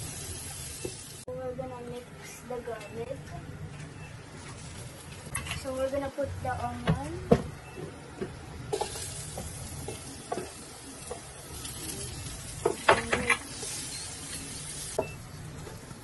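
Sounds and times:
onion sizzling in hot oil: 0:00.0 - 0:01.3, 0:08.7 - 0:16.0.

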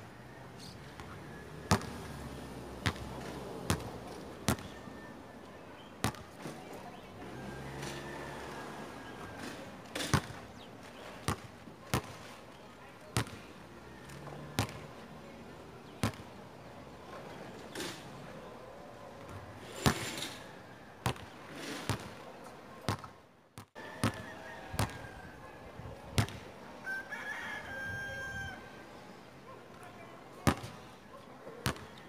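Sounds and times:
basketball bouncing on court: 0:01.7 - 0:02.1, 0:02.8 - 0:04.8, 0:06.0 - 0:06.4, 0:11.2 - 0:12.2, 0:13.2 - 0:13.4, 0:14.6 - 0:14.8, 0:16.0 - 0:16.4, 0:21.0 - 0:21.3, 0:22.9 - 0:24.2, 0:24.8 - 0:25.0, 0:30.4 - 0:30.8, 0:31.6 - 0:31.9
rooster crowing: 0:07.2 - 0:09.6, 0:23.8 - 0:25.5, 0:26.8 - 0:28.9.

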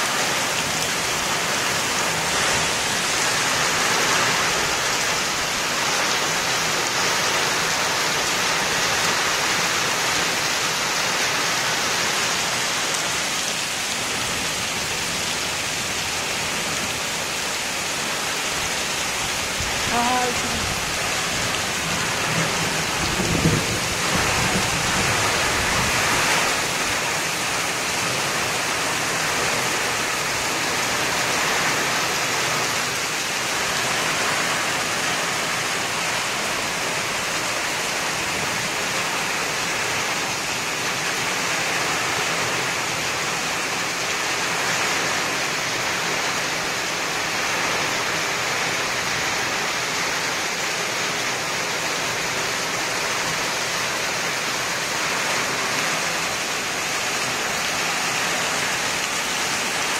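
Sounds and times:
heavy rain hissing: 0:00.0 - 0:59.9
water rushing over gravel: 0:00.0 - 0:59.9.

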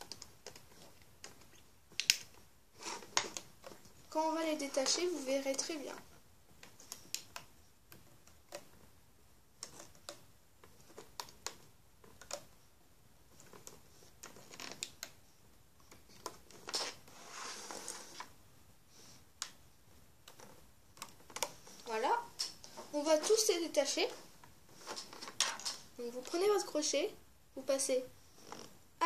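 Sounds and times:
crochet hook clicking on loom: 0:09.6 - 0:12.6.

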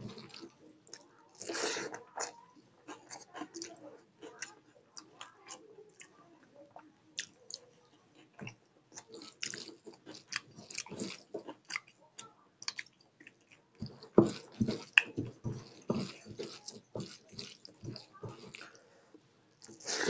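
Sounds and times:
chewing and mouth smacking: 0:07.2 - 0:18.8.

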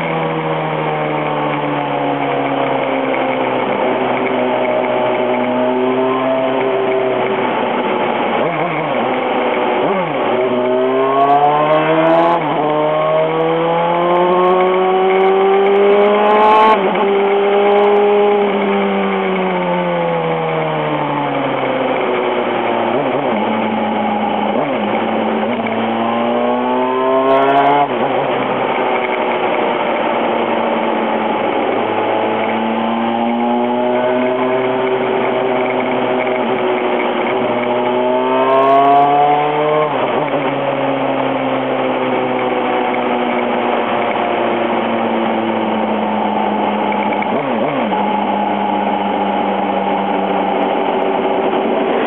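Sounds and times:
motorcycle engine revving: 0:00.0 - 0:52.0.

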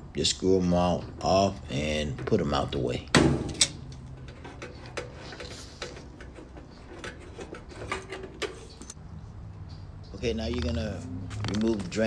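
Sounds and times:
metal hose coupling clicking: 0:03.4 - 0:09.0.

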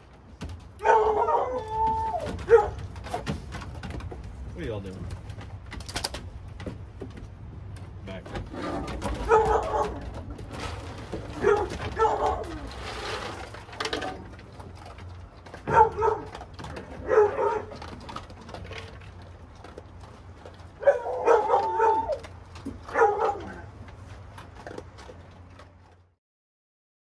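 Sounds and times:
hound dog barking: 0:00.8 - 0:02.8, 0:09.0 - 0:10.2, 0:11.3 - 0:12.7, 0:15.6 - 0:17.9, 0:20.8 - 0:23.7.

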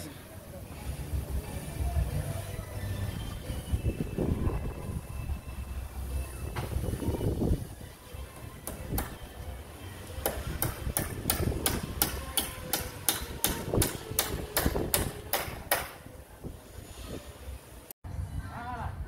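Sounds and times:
hammer striking wood: 0:08.6 - 0:09.2, 0:10.2 - 0:16.0.

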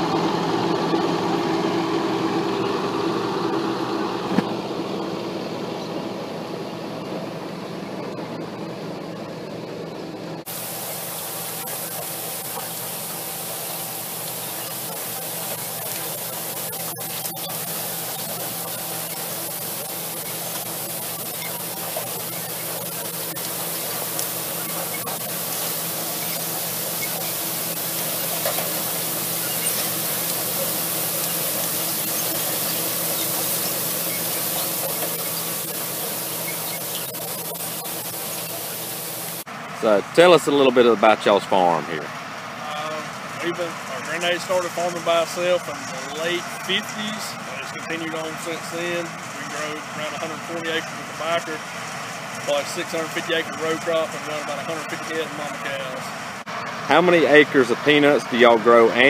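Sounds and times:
tractor engine humming: 0:00.0 - 0:59.0
machine hissing through soil: 0:10.5 - 0:40.0.

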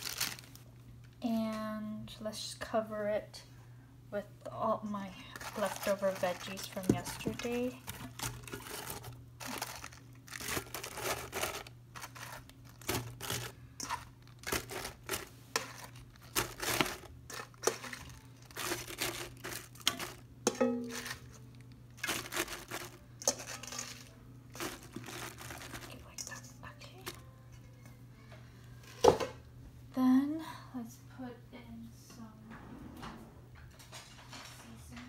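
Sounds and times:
cabbage leaves rustling and crinkling: 0:00.0 - 0:00.6, 0:05.3 - 0:26.4
crisp crunches of leaves: 0:00.0 - 0:00.6, 0:05.3 - 0:20.2, 0:22.0 - 0:26.4.

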